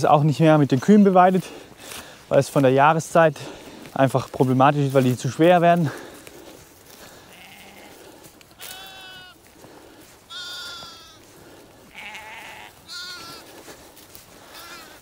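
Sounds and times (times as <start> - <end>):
sheep and lambs bleating: 6.9 - 15.0.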